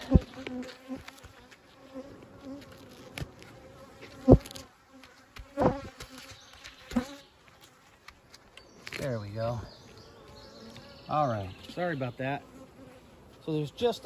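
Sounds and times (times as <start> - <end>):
bees buzzing: 0.0 - 14.0
sharp thumps: 5.4 - 7.1.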